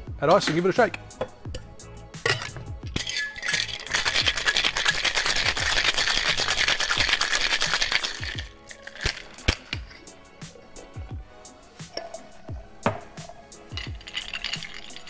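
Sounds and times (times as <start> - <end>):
ice rattling in cocktail shaker: 2.3 - 10.1, 13.4 - 15.0.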